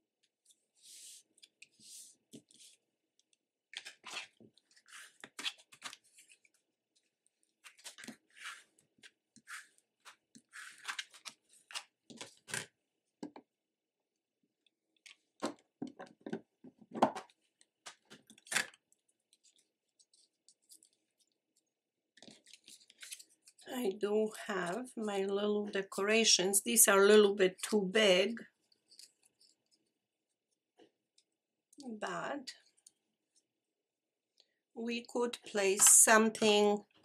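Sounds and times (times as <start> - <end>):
paper rustling and scraping: 3.8 - 6.6, 7.6 - 12.6, 22.2 - 23.6.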